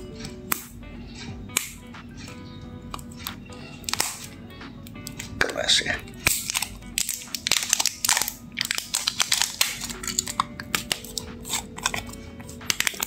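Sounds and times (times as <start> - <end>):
plastic seal crinkling: 6.2 - 13.0.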